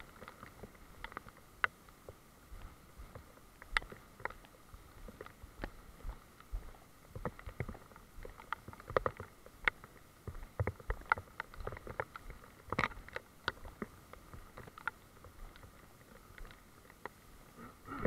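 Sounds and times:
footsteps on wet trail: 0.0s - 17.5s
faint steady hiss: 0.0s - 18.0s
raindrops dripping: 0.0s - 18.0s.

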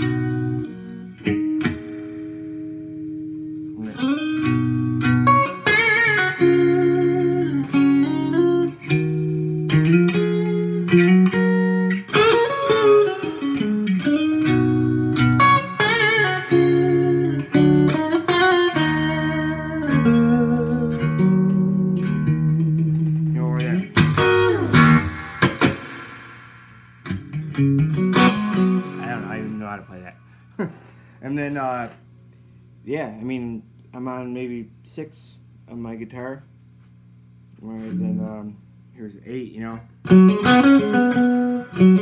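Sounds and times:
clean electric guitar playing: 0.0s - 30.3s, 37.7s - 38.8s, 40.0s - 42.0s.

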